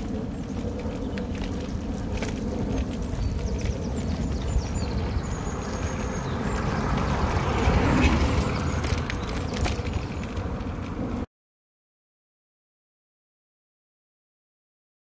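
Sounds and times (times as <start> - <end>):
small birds chirping: 0.0 - 10.4
bicycle accessories rattling: 0.0 - 11.2
low rumble of riding: 0.0 - 11.3.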